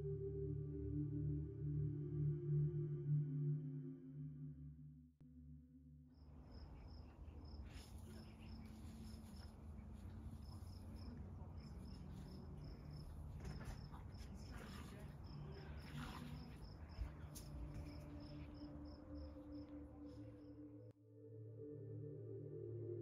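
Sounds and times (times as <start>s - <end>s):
cricket chirping: 6.2s - 20.9s.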